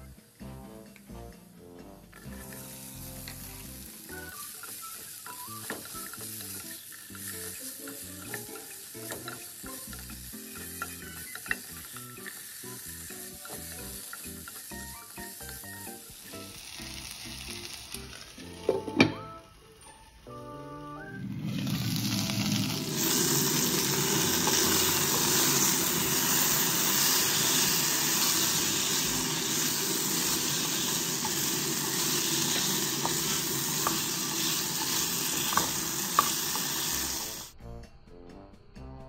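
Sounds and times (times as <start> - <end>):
potatoes sizzling in oil: 2.1 - 37.6
spatula clicking on pan: 4.5 - 15.4.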